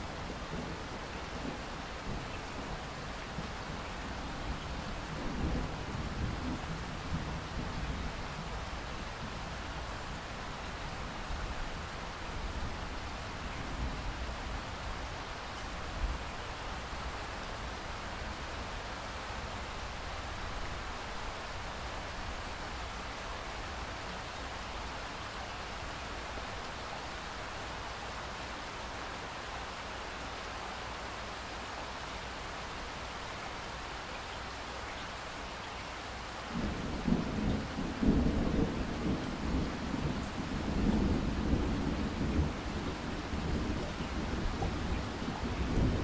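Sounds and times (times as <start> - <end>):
rain hiss: 0.0 - 46.0
rolling thunder rumble: 36.6 - 46.0.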